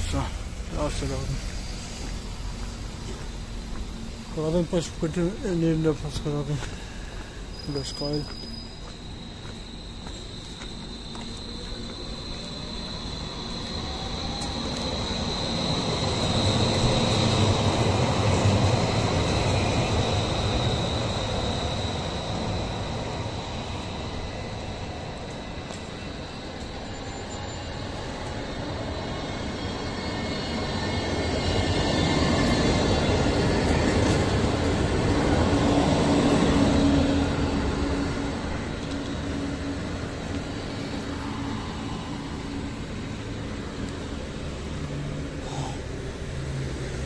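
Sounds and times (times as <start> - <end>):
tram passing on rails: 0.0 - 47.0.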